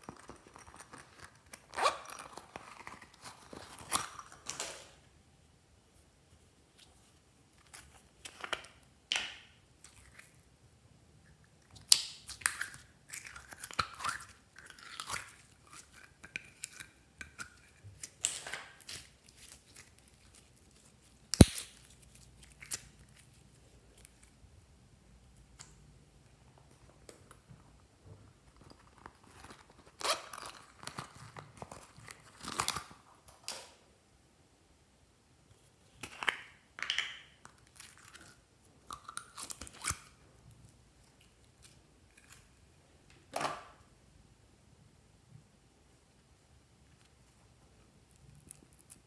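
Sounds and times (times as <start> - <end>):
slime crackling and tearing: 18.0 - 23.4.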